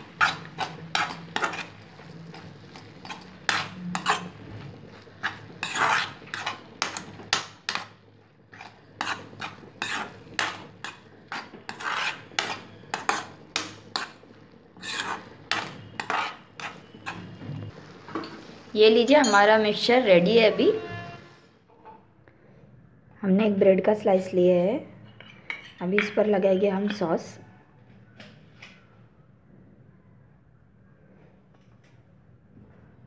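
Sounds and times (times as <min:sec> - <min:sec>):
utensil scraping metal pan: 0:00.0 - 0:07.9, 0:08.5 - 0:17.4.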